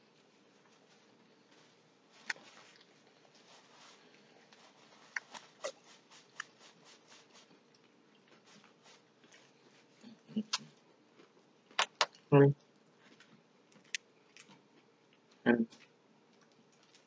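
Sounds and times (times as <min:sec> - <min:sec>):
paper napkin rustling: 0:00.2 - 0:07.6, 0:08.3 - 0:10.0
soft chewing: 0:00.3 - 0:11.8, 0:12.6 - 0:17.0.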